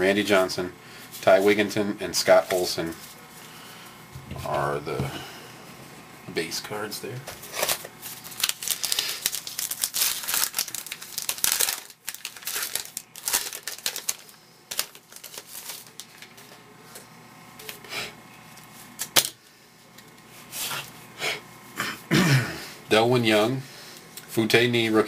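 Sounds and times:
cards rustling: 0:07.4 - 0:17.0
plastic wrapper crinkling and tearing: 0:07.5 - 0:16.5.

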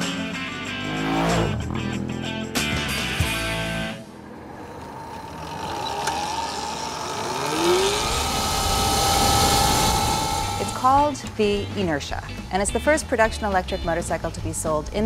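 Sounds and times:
music: 0:00.0 - 0:04.1, 0:10.4 - 0:15.0
electric motorcycle whine: 0:00.0 - 0:11.4.

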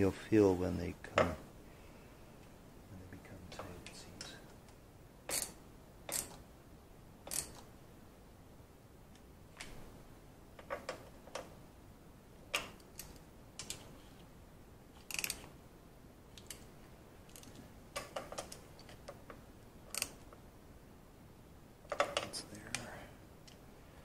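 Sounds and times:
metallic clicks of hand wrench: 0:07.3 - 0:07.6, 0:15.1 - 0:15.5, 0:19.9 - 0:20.2.

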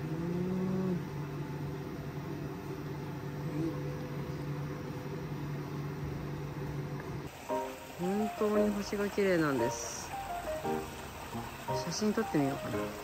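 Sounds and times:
low machine hum: 0:00.0 - 0:13.0
faint hiss: 0:07.3 - 0:13.0.

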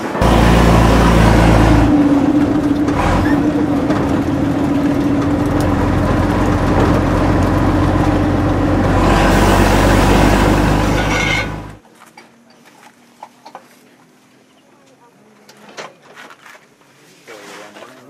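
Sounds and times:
bus engine droning: 0:00.0 - 0:11.8
road noise: 0:00.0 - 0:11.8.

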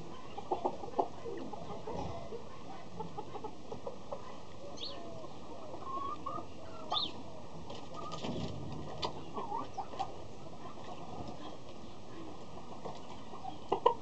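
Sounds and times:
chickens clucking: 0:00.0 - 0:14.0
bird chirps and calls: 0:04.7 - 0:07.2.

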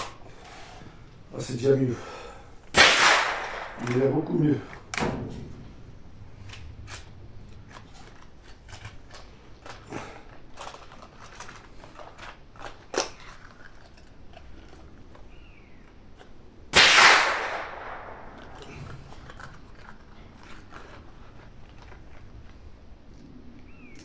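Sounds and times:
rifle shot with echo: 0:02.7 - 0:04.2, 0:16.7 - 0:18.5.

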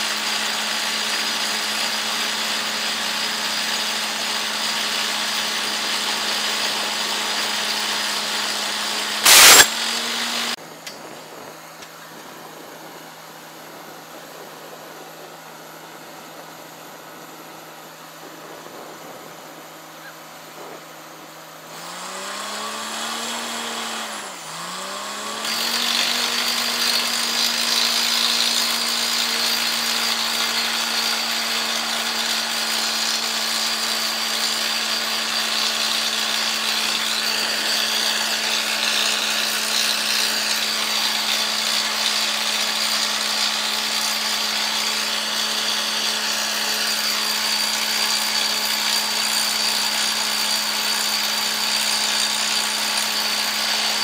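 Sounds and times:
drilling rig engine revving: 0:03.5 - 0:10.6, 0:21.7 - 0:33.2.

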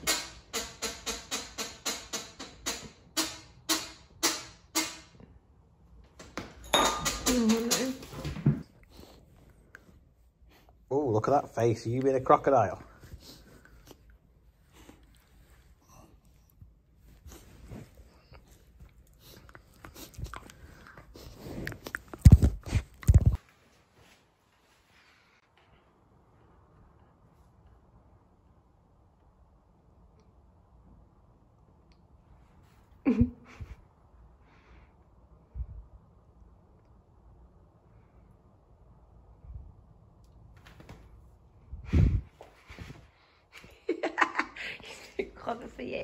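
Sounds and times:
rustling of fur and clothing: 0:08.0 - 0:25.5.

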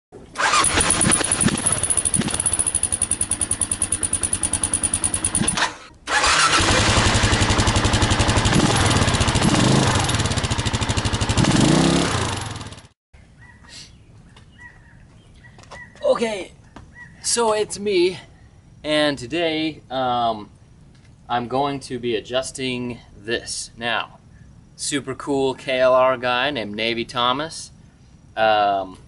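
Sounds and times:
motorcycle engine running: 0:00.4 - 0:12.9
motorcycle throttle blips: 0:00.4 - 0:12.9.

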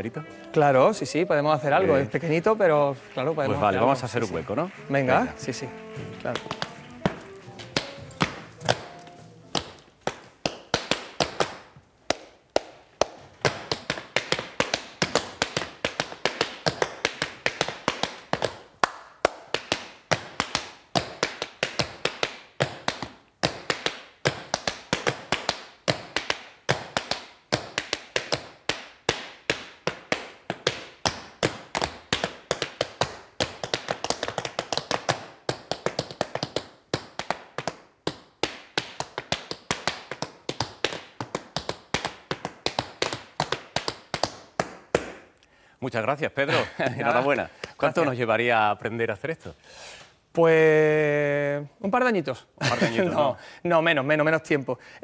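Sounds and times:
tap shoes on wooden board: 0:06.0 - 0:12.2.

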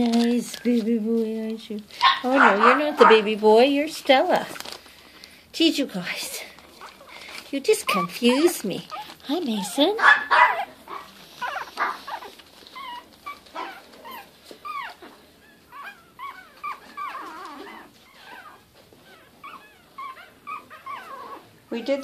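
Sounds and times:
puppies whimpering: 0:06.7 - 0:22.0.

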